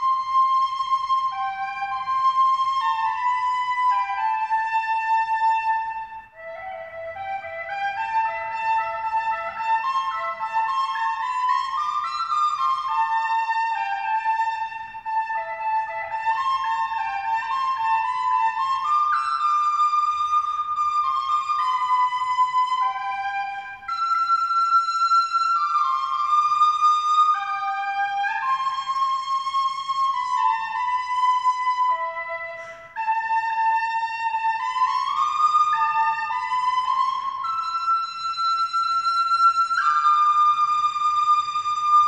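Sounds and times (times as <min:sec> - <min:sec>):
slow wind instrument melody: 0:00.0 - 0:42.0.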